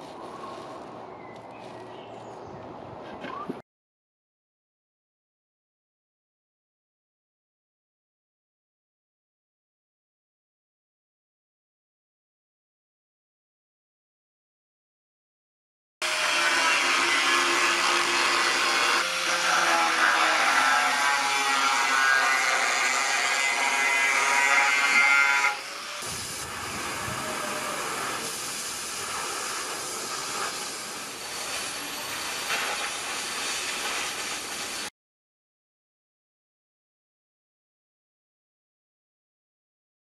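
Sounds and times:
cutting torch hissing: 16.0 - 34.9.

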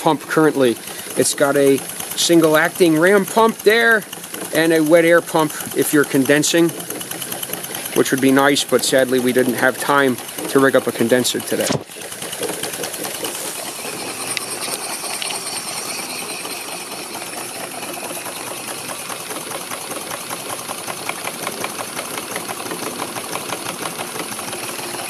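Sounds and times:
model steam engine clattering: 0.0 - 25.0
steam hissing: 0.8 - 5.9, 11.4 - 23.1.

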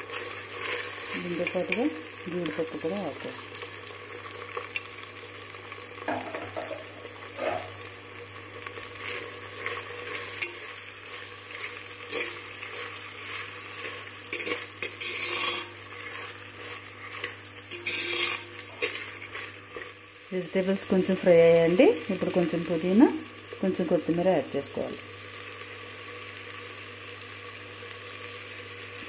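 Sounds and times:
vegetables sizzling in oil: 0.0 - 29.0
spoon scraping clay pot: 9.0 - 20.0.

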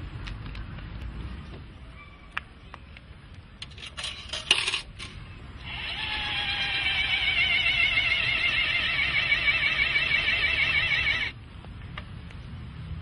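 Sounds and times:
coins clinking into slot: 3.6 - 5.2
warbling mechanical whine: 5.6 - 11.4.

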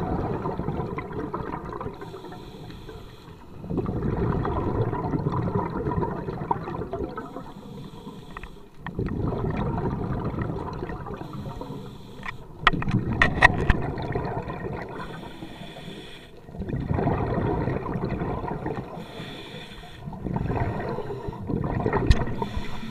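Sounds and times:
gurgling bubble exhalations: 0.0 - 2.2, 3.6 - 7.5, 8.9 - 11.6, 12.7 - 15.2, 16.4 - 19.2, 20.0 - 22.9
regulator inhalation hiss: 7.5 - 8.7, 15.0 - 16.4, 19.0 - 20.1, 22.4 - 22.9.

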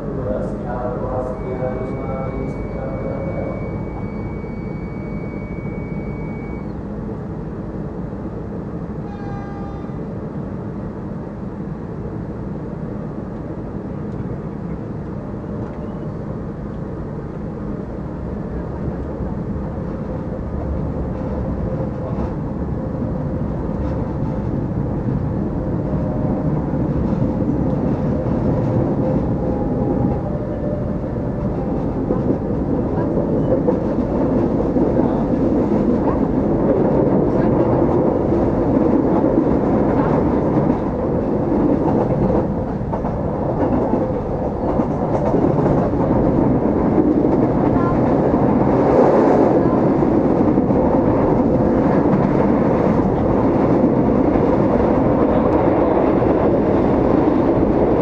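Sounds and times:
train rumble inside carriage: 0.0 - 58.0.

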